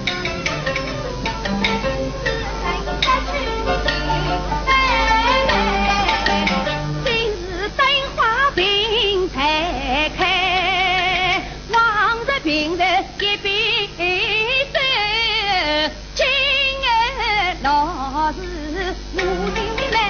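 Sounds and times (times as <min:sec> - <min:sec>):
woman singing opera with vibrato: 0:04.7 - 0:20.0.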